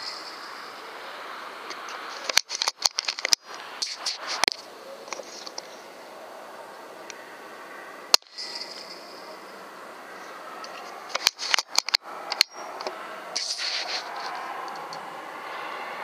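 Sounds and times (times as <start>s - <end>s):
steady low hiss: 0.0s - 16.0s
air rifle crack: 1.7s - 5.7s, 10.7s - 15.0s
sharp clicks: 1.7s - 5.7s, 10.6s - 14.1s.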